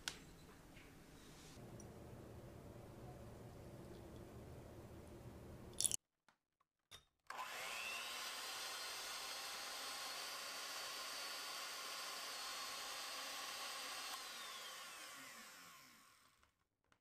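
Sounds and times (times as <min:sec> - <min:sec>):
electric hand mixer whipping cream: 0:07.3 - 0:16.5.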